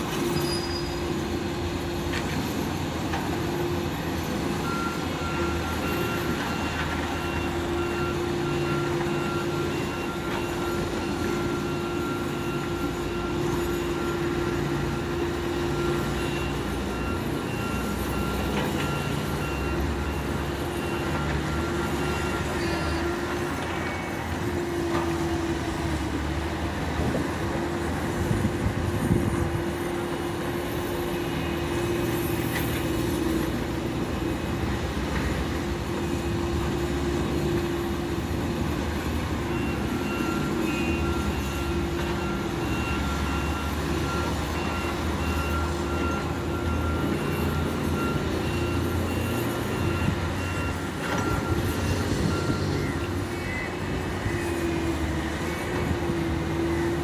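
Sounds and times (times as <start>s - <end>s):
diesel engines rumbling: 0.0s - 57.0s.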